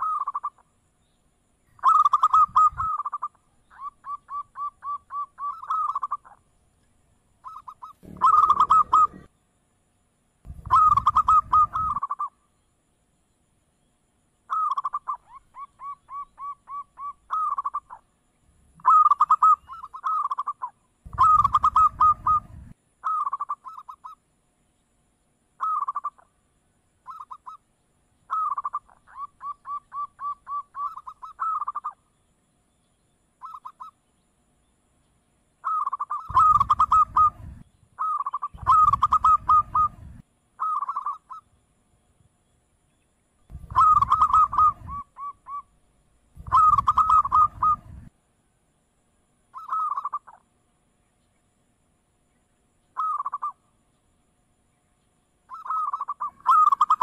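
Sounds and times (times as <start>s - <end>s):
dove cooing: 0.0s - 0.6s, 1.8s - 6.4s, 7.4s - 9.3s, 10.5s - 12.3s, 14.5s - 18.0s, 18.7s - 24.2s, 25.6s - 26.2s, 28.3s - 32.0s, 33.4s - 33.9s, 35.6s - 41.4s, 43.5s - 45.7s, 46.4s - 48.1s, 49.5s - 50.4s, 53.0s - 53.6s, 55.5s - 57.0s.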